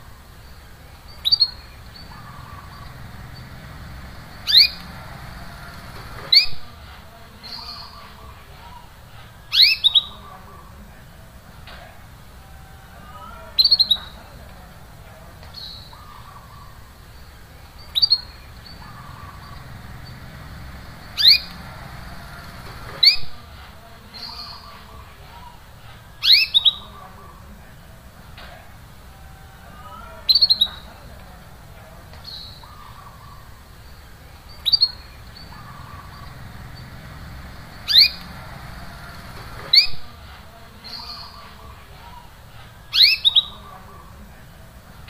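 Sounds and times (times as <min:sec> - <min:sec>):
steady low hum: 0:00.0 - 0:09.5, 0:14.2 - 0:24.1, 0:30.9 - 0:40.9
canary call notes: 0:01.2 - 0:06.8, 0:17.9 - 0:23.5, 0:34.6 - 0:40.3.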